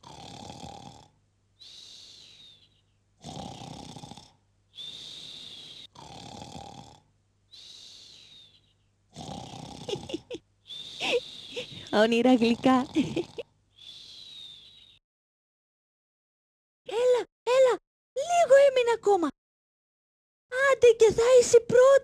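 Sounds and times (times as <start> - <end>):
cartoon snoring with whistle: 0.0 - 2.6, 3.2 - 7.0, 9.2 - 15.0.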